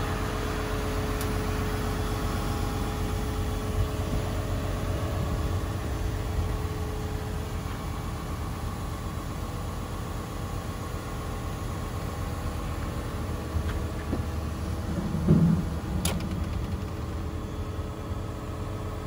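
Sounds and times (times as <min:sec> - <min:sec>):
diesel engine idling: 0:00.0 - 0:19.0
dull thump: 0:14.9 - 0:17.1.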